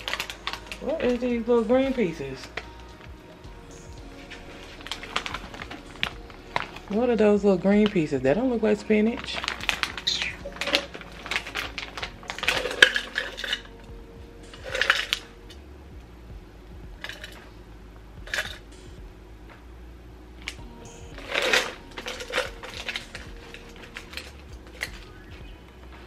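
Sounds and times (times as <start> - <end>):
plastic pouch crinkling: 0.0 - 2.8, 4.2 - 13.7, 21.2 - 25.2.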